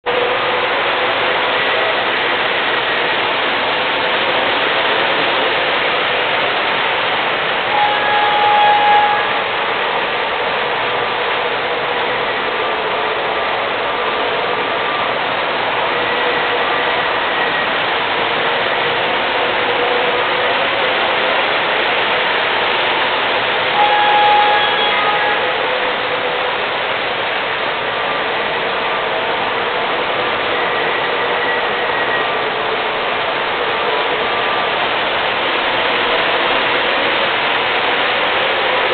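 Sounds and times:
model trains rumbling on track: 0.0s - 38.9s
short pitched tone: 7.7s - 9.5s, 23.8s - 25.7s.

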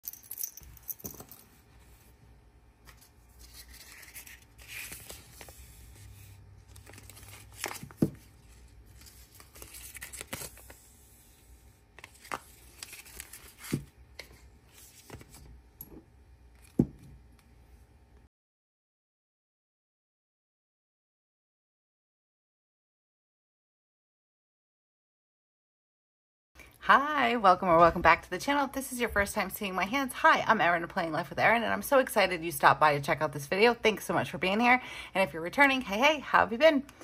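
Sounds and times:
paper rustling: 2.8s - 10.9s, 12.0s - 15.5s.

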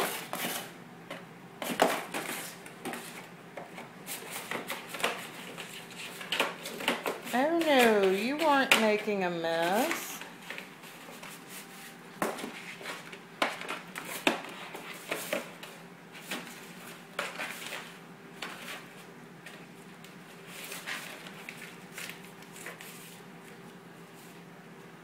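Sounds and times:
cardboard and paper crinkling: 20.4s - 23.6s.

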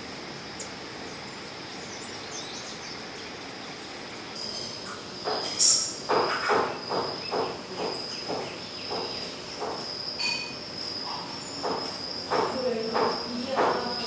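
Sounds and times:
cicadas droning: 0.0s - 14.0s.

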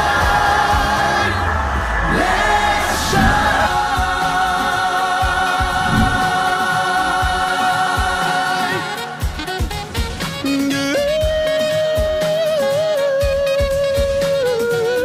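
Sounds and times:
uplifting pop song with choir: 0.0s - 15.0s.

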